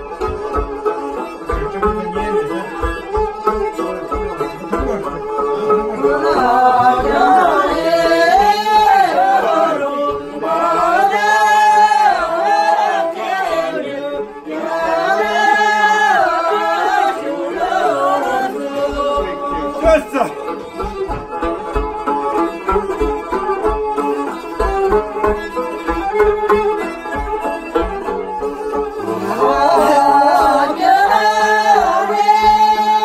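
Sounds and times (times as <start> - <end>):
strummed lutes: 0.0 - 33.0
men and women singing together: 5.8 - 20.4, 29.0 - 33.0.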